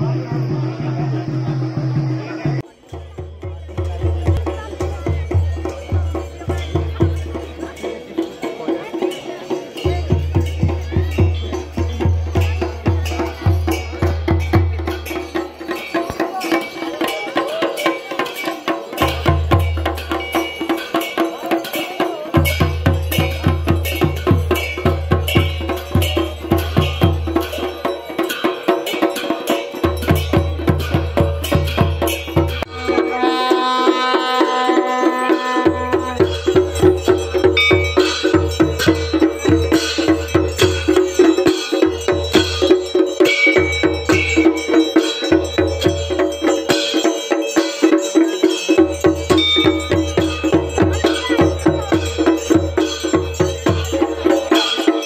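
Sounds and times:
fast busy drum rhythm: 0:00.0 - 0:55.0
long held note with overtones: 0:32.7 - 0:36.2.

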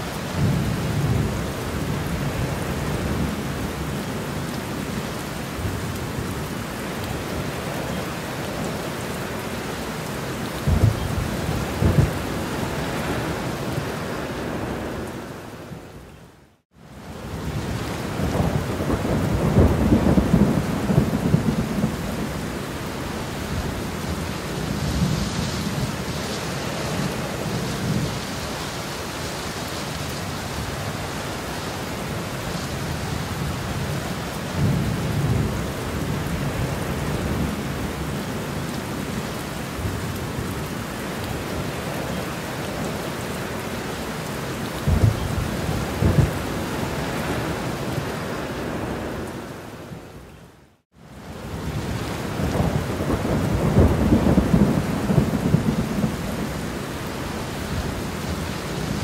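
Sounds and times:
steady rain: 0:00.0 - 0:59.0
low rolls of thunder: 0:10.6 - 0:13.9, 0:17.3 - 0:22.6, 0:44.8 - 0:48.0, 0:51.5 - 0:56.7.

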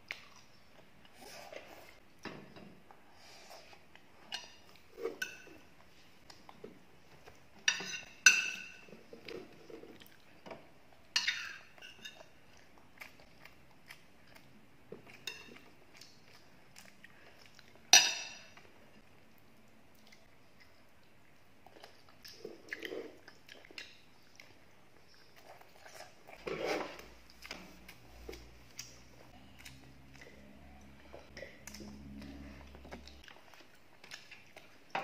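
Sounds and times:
soft chewing: 0:00.0 - 0:02.2, 0:02.9 - 0:35.0
spoons clinking on plates: 0:07.7 - 0:08.9.

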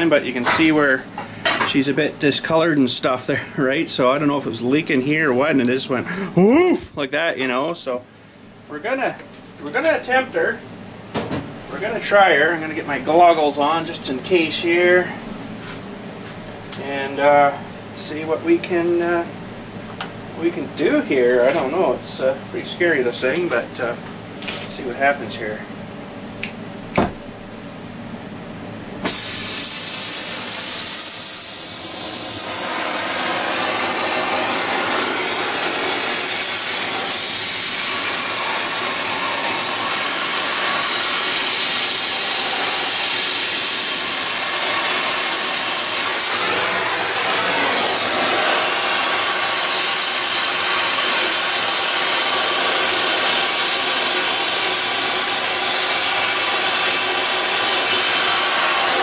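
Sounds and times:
gas torch hissing: 0:29.0 - 0:59.0.

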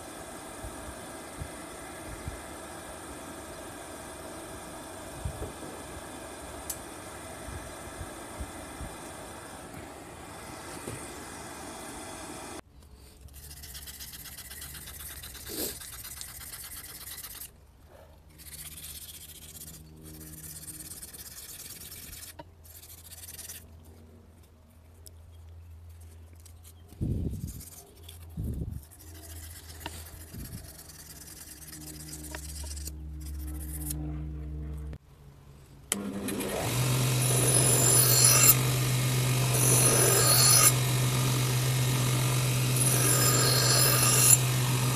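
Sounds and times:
low motor hum: 0:00.0 - 0:12.6, 0:29.4 - 0:44.9
belt sander grinding steel: 0:18.3 - 0:23.6, 0:27.4 - 0:35.0, 0:35.9 - 0:44.9.

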